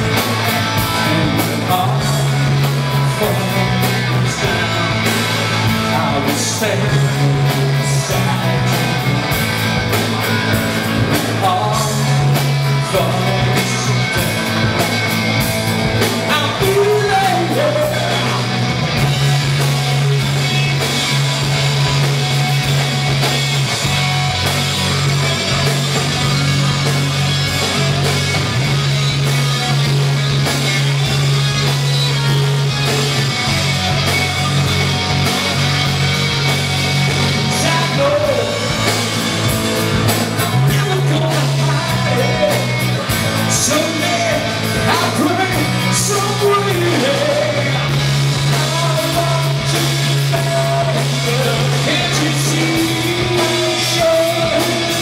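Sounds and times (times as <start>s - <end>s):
bass guitar: 0.0s - 55.0s
drum kit: 0.0s - 55.0s
electric guitars: 0.0s - 55.0s
man singing: 0.8s - 9.3s, 11.1s - 14.8s, 16.0s - 18.7s, 37.4s - 38.9s, 40.4s - 55.0s.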